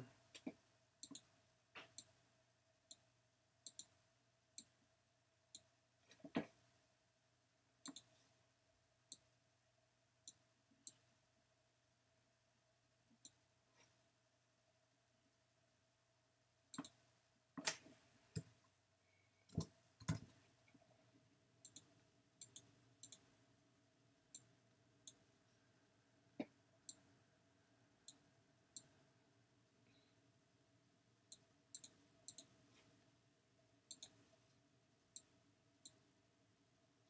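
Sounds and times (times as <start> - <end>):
faint steady hum: 0.0 - 37.0
mouse buttons clicking: 0.4 - 2.1, 3.7 - 3.9, 7.8 - 8.1, 16.8 - 17.0, 21.6 - 23.3, 31.3 - 32.6, 33.9 - 34.2.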